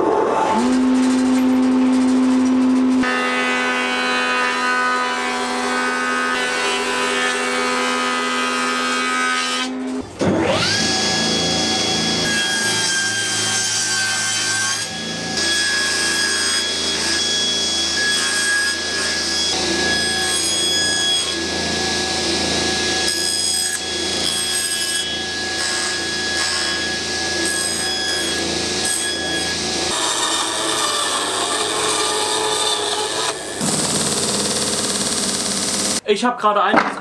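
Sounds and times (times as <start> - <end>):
table saw whining: 0.0 - 36.0
saw cutting wood: 2.8 - 36.0
thickness planer humming: 29.6 - 36.0.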